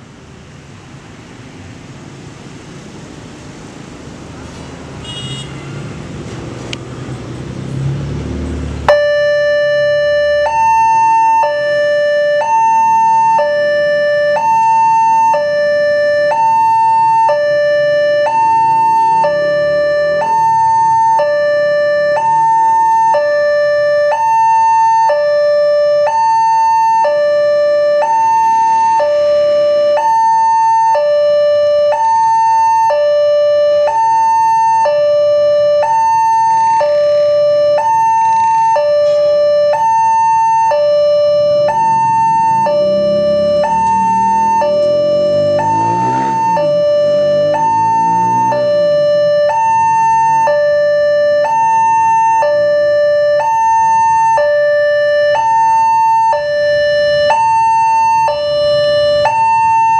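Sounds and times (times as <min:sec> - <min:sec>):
passing motorbikes and cars: 0:00.3 - 0:11.2, 0:11.8 - 0:24.5, 0:38.0 - 0:51.8, 0:58.2 - 0:59.9
level crossing two-tone alarm: 0:08.8 - 0:59.9.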